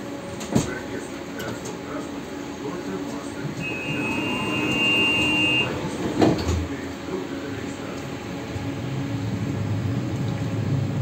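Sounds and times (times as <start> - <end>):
tram hum and rumble: 0.0 - 11.0
high electronic door warning beep: 3.6 - 5.9.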